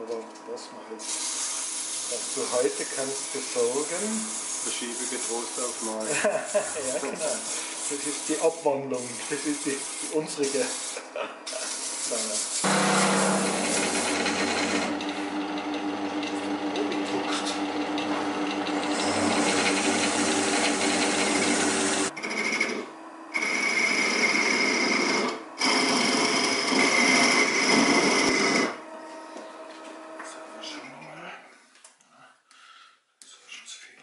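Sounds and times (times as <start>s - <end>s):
wood lathe whining: 1.0s - 8.5s, 11.7s - 29.5s
machine humming: 12.4s - 31.0s.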